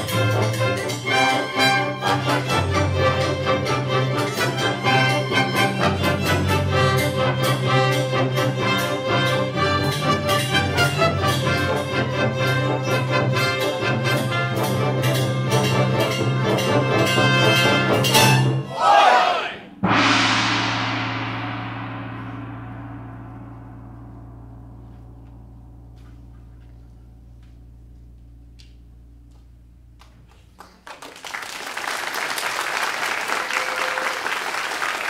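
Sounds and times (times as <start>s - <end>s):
orchestra playing: 0.0s - 27.6s
cymbal crash: 19.6s - 27.4s.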